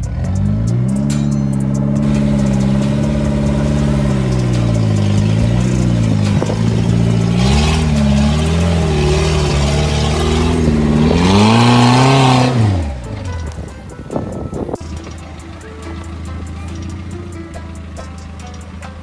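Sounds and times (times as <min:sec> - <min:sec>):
car engine revving hard: 0:00.0 - 0:13.3.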